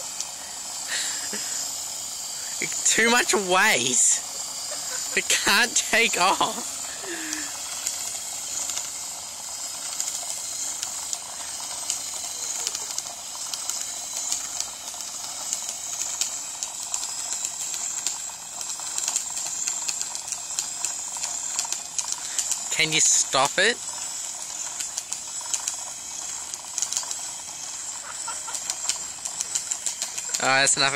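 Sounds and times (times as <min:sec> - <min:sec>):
toy helicopter motor whirring: 0:00.0 - 0:30.9
rattling clicks: 0:04.4 - 0:23.1, 0:23.8 - 0:30.9.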